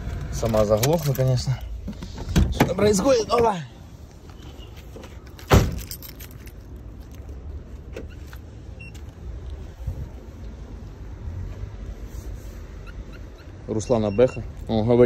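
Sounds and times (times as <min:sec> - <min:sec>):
keys jangling: 0:05.2 - 0:07.3
car door slamming: 0:05.4 - 0:06.0.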